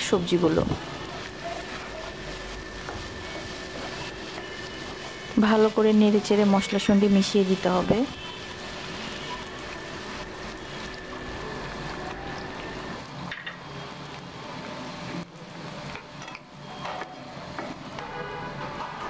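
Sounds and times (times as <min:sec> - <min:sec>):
vegetables sizzling in a frying pan: 0:00.0 - 0:18.0.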